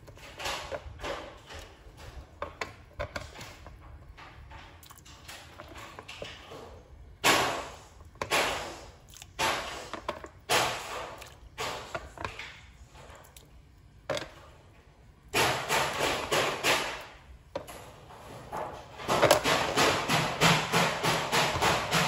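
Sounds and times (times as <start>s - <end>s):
toys crashing and banging: 18.5s - 22.0s.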